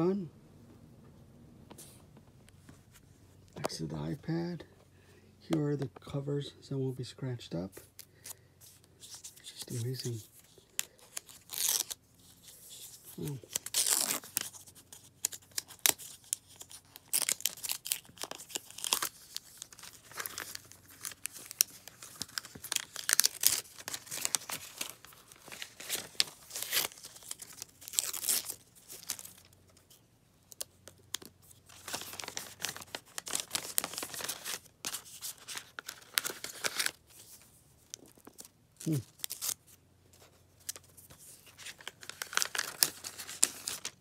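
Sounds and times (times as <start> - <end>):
packaging wrap crinkling and tearing: 9.0 - 39.7, 40.6 - 44.0.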